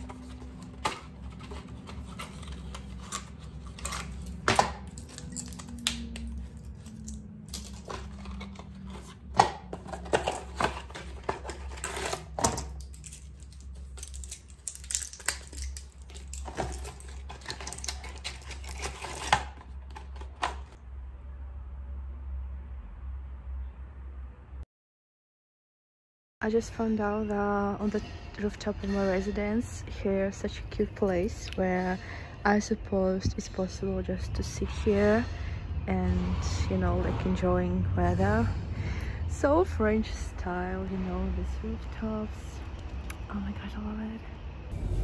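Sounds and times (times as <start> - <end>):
packaging crinkling and clicking: 0.0 - 20.8
steady low hum: 27.2 - 45.0.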